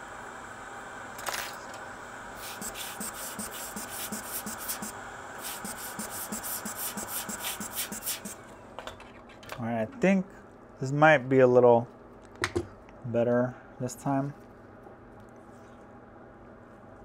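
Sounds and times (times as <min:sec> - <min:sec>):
hot air blower hissing: 0:00.0 - 0:08.6
tool scratching circuit board: 0:02.4 - 0:08.4.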